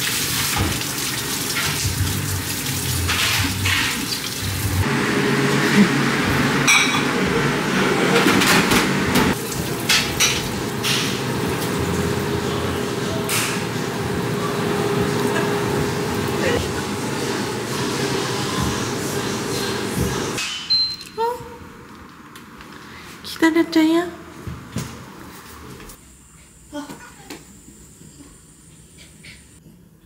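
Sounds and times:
tap water running into sink: 0:00.0 - 0:04.8
dishes and cutlery clinking: 0:06.6 - 0:07.2.

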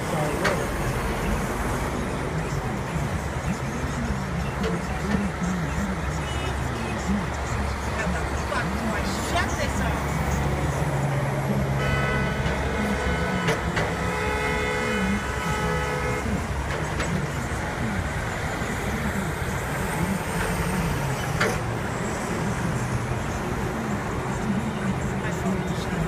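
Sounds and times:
highway traffic noise: 0:00.0 - 0:26.0
vehicle horn blast: 0:11.7 - 0:16.4.

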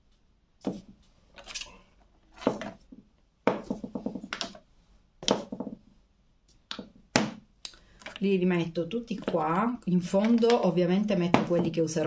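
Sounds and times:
makeup bottles knocking and clinking: 0:10.1 - 0:10.7, 0:11.3 - 0:11.9.

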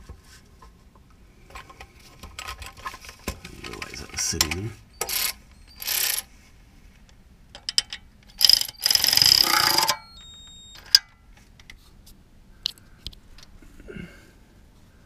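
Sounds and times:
ratchet wrench clicking: 0:05.0 - 0:06.3, 0:07.6 - 0:10.0.

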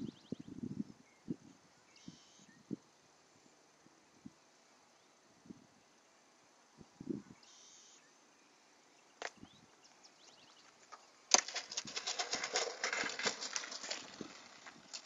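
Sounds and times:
crackling scrape on asphalt: 0:10.7 - 0:15.0.

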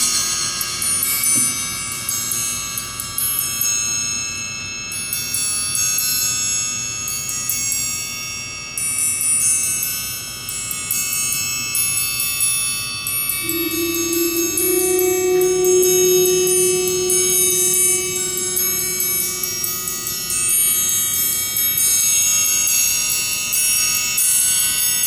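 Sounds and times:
triangle struck with beater: 0:13.4 - 0:20.6.

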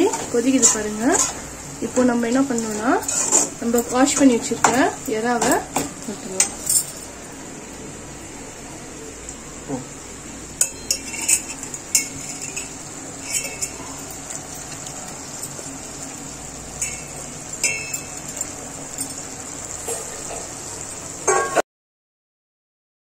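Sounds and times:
metal spatula scraping a pan: 0:00.0 - 0:05.6, 0:10.7 - 0:14.0.

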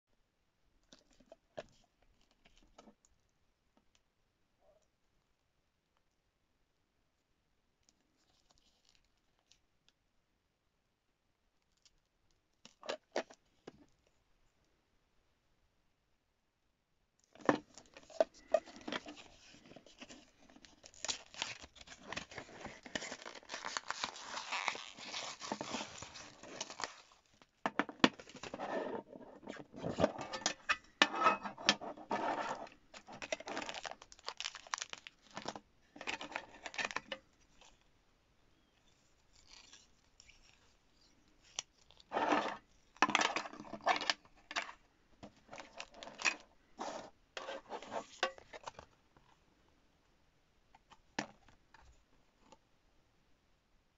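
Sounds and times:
cardboard packaging rustling and tearing: 0:17.7 - 0:27.4, 0:32.1 - 0:37.8.

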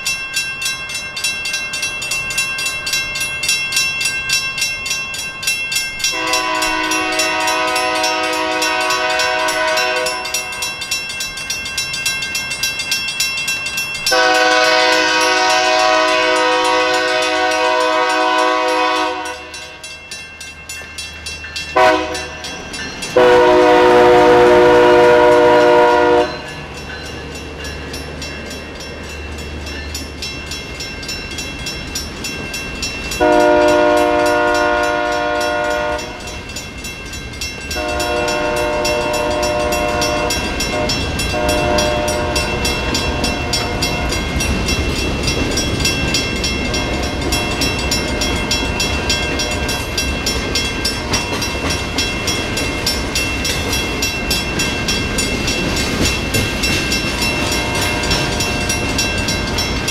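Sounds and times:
crossing bell ringing: 0:00.0 - 0:59.9
train low rumble: 0:00.0 - 0:59.9
locomotive air horn blasts: 0:06.1 - 0:10.6, 0:14.1 - 0:19.7, 0:21.8 - 0:22.4, 0:23.2 - 0:26.4, 0:33.2 - 0:36.3, 0:37.8 - 0:42.7.

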